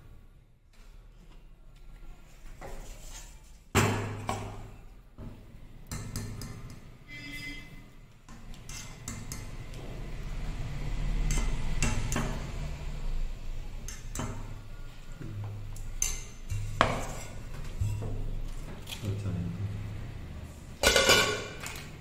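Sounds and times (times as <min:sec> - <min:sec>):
steel ladle scraping a pot: 0:06.7 - 0:09.7, 0:15.8 - 0:18.9.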